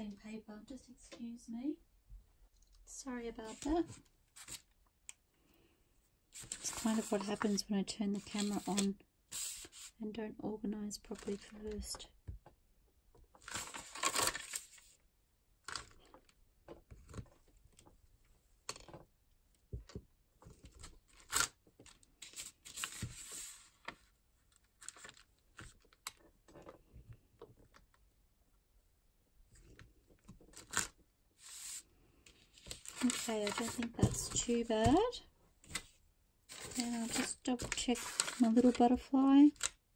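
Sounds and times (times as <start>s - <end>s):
paper rustling and sliding: 6.4s - 7.6s, 8.2s - 10.0s, 13.4s - 15.0s, 22.2s - 24.1s, 30.6s - 35.0s, 35.6s - 38.8s.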